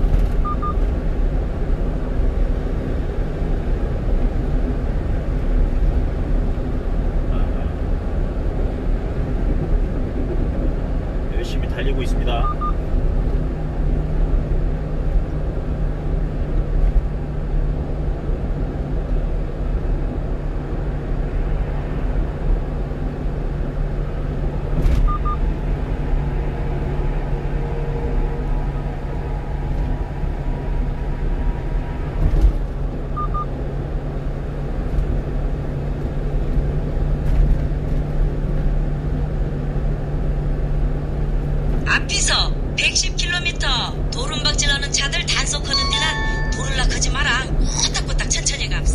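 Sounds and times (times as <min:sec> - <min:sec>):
truck road and engine noise: 0:00.0 - 0:48.9.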